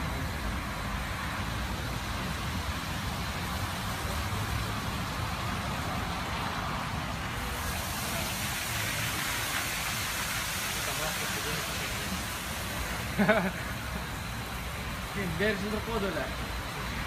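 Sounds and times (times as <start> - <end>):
high-pressure spray hissing: 7.3 - 17.0.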